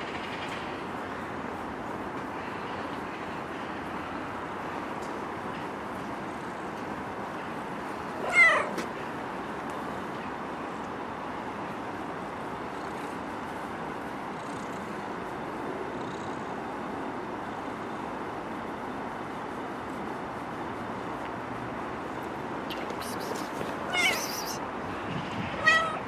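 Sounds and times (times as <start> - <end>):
street noise hiss: 0.0 - 26.0
cat meowing: 8.2 - 8.8, 22.7 - 24.6, 25.6 - 26.0.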